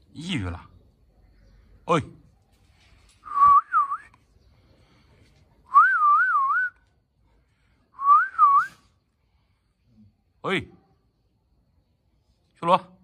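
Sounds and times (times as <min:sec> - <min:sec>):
person whistling: 0:03.2 - 0:04.1, 0:05.7 - 0:06.8, 0:08.0 - 0:08.9.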